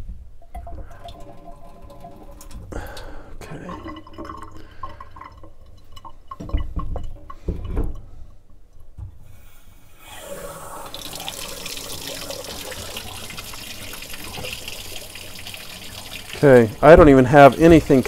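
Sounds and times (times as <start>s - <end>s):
water rushing into a sink: 10.0s - 18.0s.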